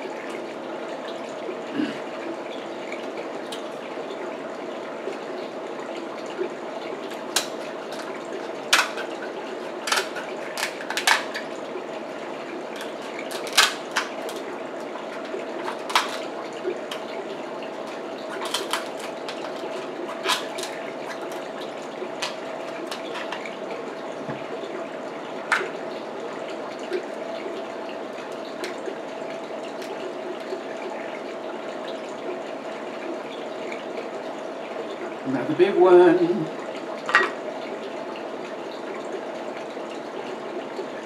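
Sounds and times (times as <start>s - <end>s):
background hum and hiss: 0.0s - 41.0s
scissors cracking crab shell: 7.1s - 11.5s, 12.7s - 14.5s, 15.1s - 16.3s, 17.8s - 23.4s.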